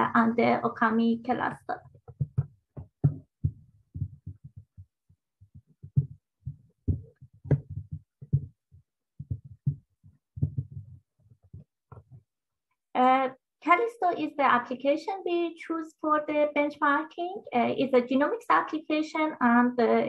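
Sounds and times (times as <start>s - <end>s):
soft low thuds: 1.8s - 12.3s.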